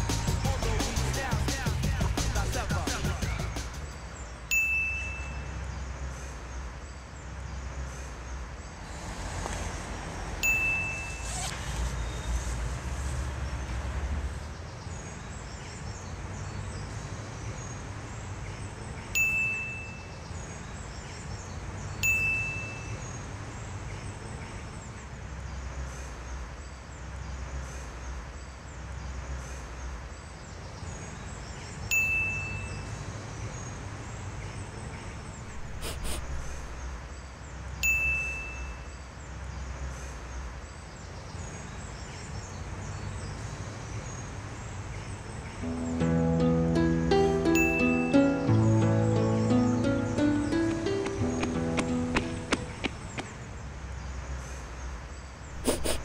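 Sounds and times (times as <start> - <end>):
bright chime ding: 4.5 - 5.5, 10.4 - 11.3, 47.6 - 48.1.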